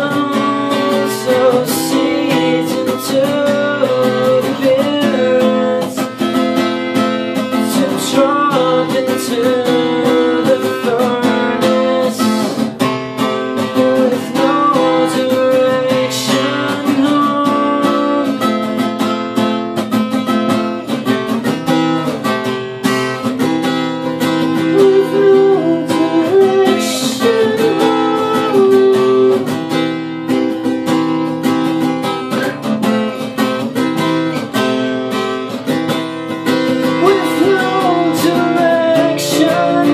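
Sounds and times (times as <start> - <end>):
man singing: 0.0 - 18.8, 24.1 - 29.7, 36.7 - 39.9
acoustic guitar strummed: 0.0 - 39.9.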